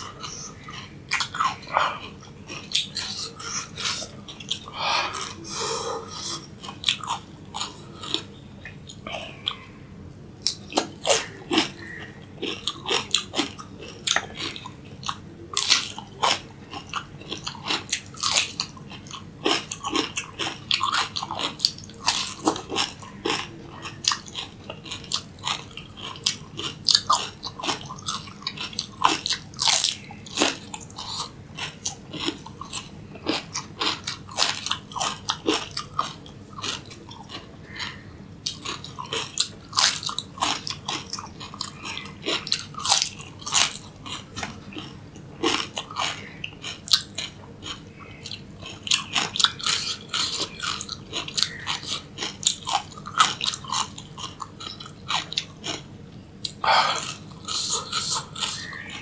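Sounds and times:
cucumber crunching: 10.4 - 55.8
wet chewing: 10.4 - 59.0.

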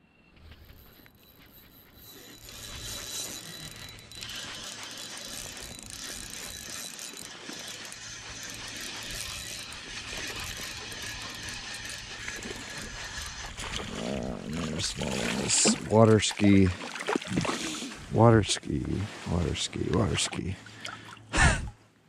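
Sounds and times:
spinning reel gears cranking: 0.5 - 15.7.

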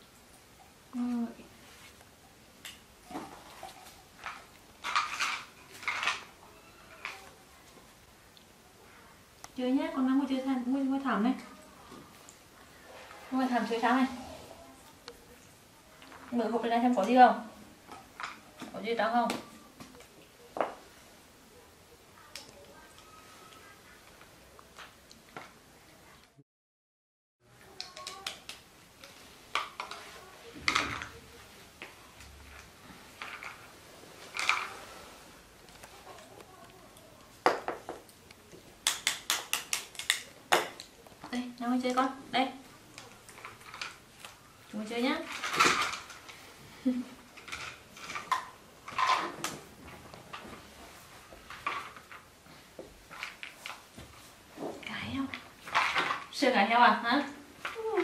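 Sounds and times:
plastic bottles clicking and tapping: 37.4 - 38.1.

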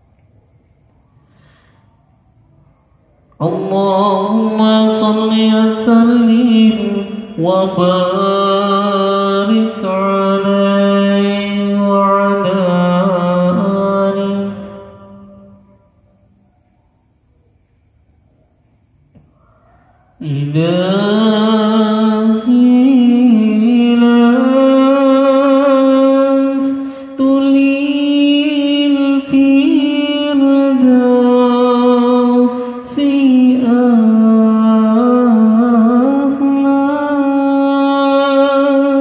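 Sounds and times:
man singing devotional chant: 3.4 - 15.6, 20.1 - 39.0.

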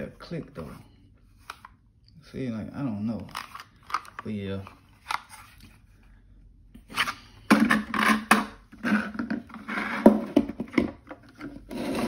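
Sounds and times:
plastic holster scraping and rattling: 7.0 - 12.0.

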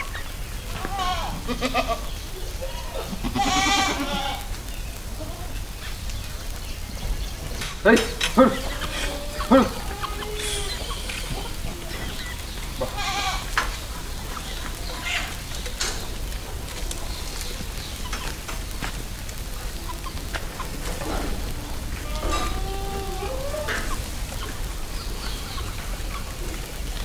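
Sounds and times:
goat bleating: 0.8 - 4.5, 8.4 - 12.2, 12.8 - 13.6.

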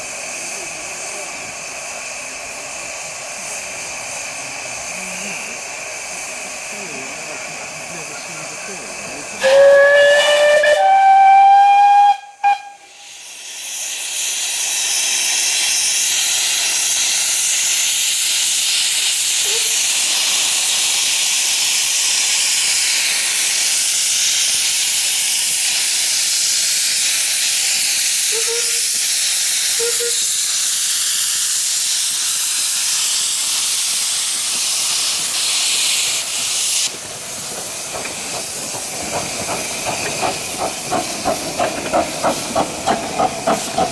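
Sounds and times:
escaping steam hiss: 0.0 - 43.9
steam locomotive whistle: 9.4 - 13.2, 28.2 - 29.0, 29.7 - 30.4.

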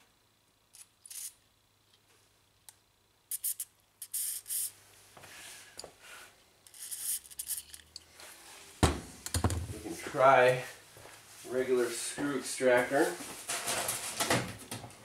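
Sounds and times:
aerosol spray hissing: 3.3 - 4.8, 6.7 - 7.8.

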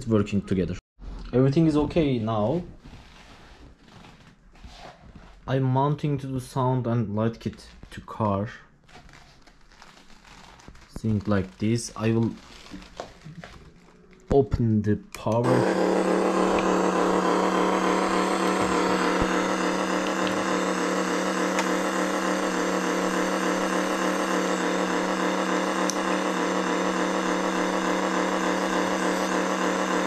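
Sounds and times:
simulated car engine idling: 15.4 - 30.0.

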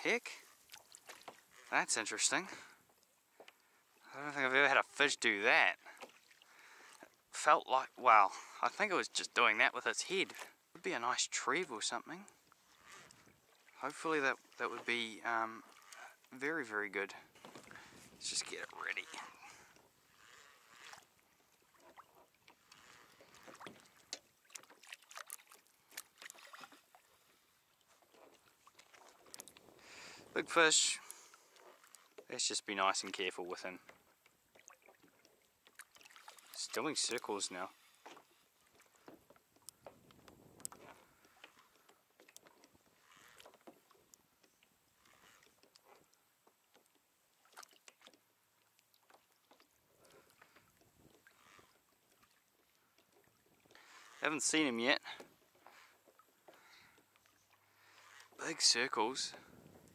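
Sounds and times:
water lapping against kayak hull: 0.0 - 59.9.

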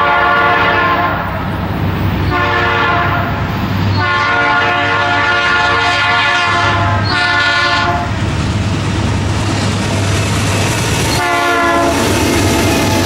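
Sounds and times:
train air horn blasts: 0.0 - 1.4, 2.2 - 8.2, 11.1 - 12.2
locomotive engines rumbling: 0.0 - 13.0
train wheels on rails: 0.0 - 13.0.

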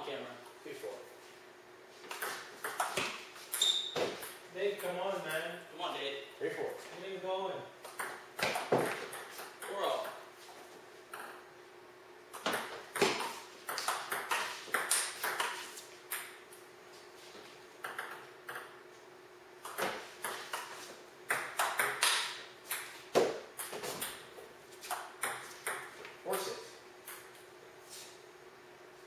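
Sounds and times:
ping pong ball hits: 12.4 - 16.4, 21.3 - 24.2, 24.9 - 25.9.

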